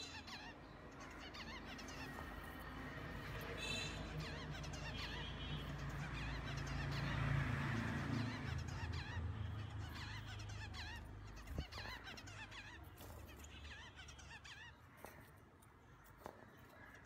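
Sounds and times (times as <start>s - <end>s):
finches chirping: 7.8s - 17.0s.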